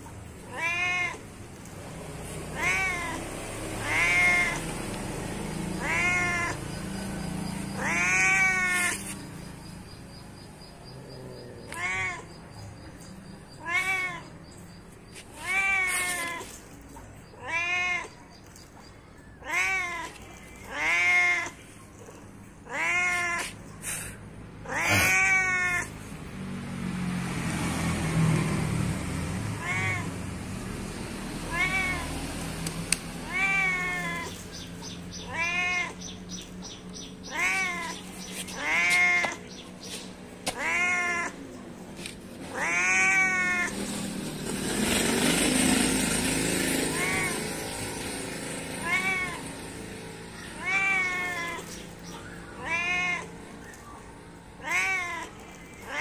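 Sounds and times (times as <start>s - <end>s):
cat meowing: 0.2s - 1.4s, 2.2s - 9.5s, 11.1s - 18.4s, 19.3s - 23.7s, 24.6s - 26.0s, 29.3s - 30.2s, 31.4s - 39.7s, 40.5s - 43.8s, 46.8s - 47.7s, 48.6s - 56.0s.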